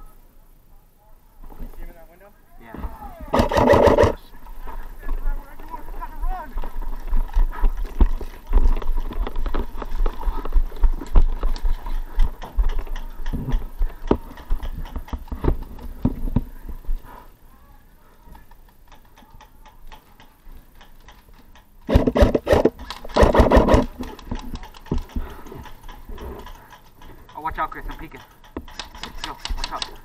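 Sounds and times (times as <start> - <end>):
airsoft rifle bursts: 3.3 - 4.3, 21.8 - 27.0, 28.0 - 30.0
footsteps on gravel: 4.1 - 14.3.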